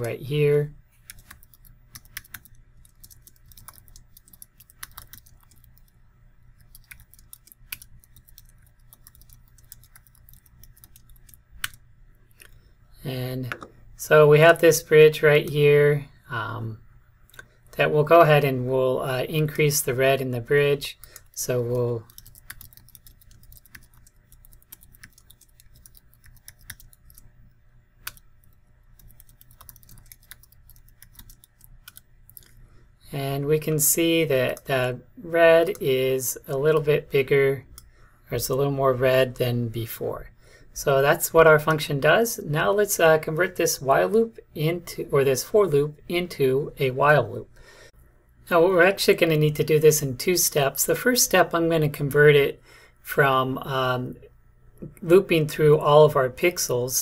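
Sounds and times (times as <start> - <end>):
faint low hum: 0.0 - 57.0
computer keyboard typing: 1.0 - 11.8, 21.0 - 27.3, 28.0 - 32.6.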